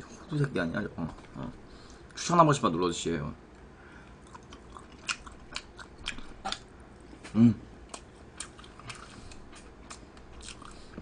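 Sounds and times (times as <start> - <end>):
close chewing with mouth clicks: 4.2 - 6.7, 7.8 - 11.0
person humming: 7.3 - 7.6.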